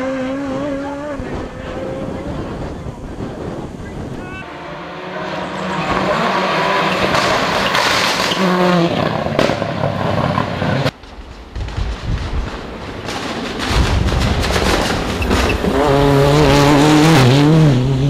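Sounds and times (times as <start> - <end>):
rally car engine revving: 0.0 - 2.8, 4.4 - 10.9, 14.4 - 18.0.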